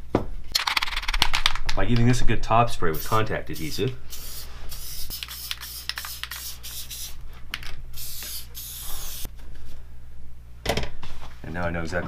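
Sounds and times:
aerosol can hissing: 3.6 - 7.2, 8.0 - 9.3.

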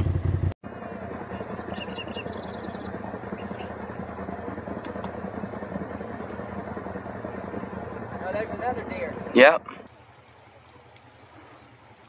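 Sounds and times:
engine idling: 0.0 - 12.0
faint clicks: 10.2 - 12.0.

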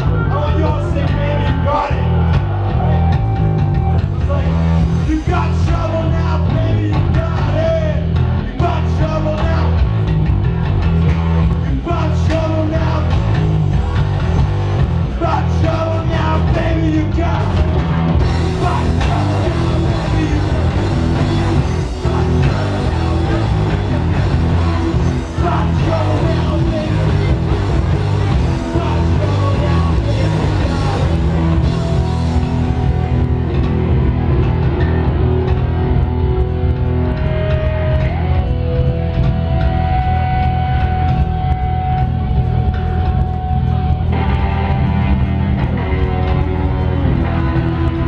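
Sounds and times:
bass guitar: 0.0 - 48.0
distorted electric guitars: 0.0 - 48.0
drums: 0.0 - 48.0
person singing: 18.3 - 31.9.

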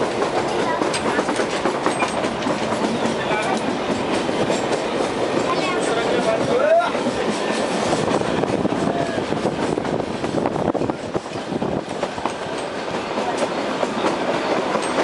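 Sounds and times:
train wheels clattering over rails: 0.0 - 15.0
rushing air: 6.4 - 12.9.

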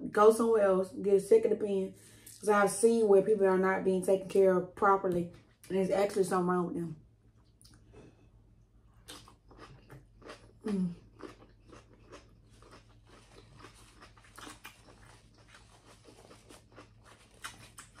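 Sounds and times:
person chewing with wet smacks: 7.3 - 18.0.

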